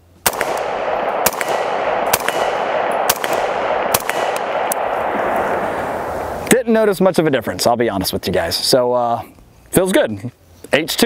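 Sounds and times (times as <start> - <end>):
rifle shots: 0.2 - 6.6.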